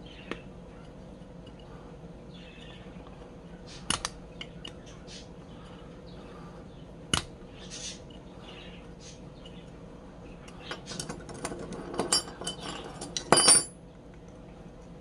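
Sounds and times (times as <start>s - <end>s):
metal tools clinking: 10.7s - 13.8s.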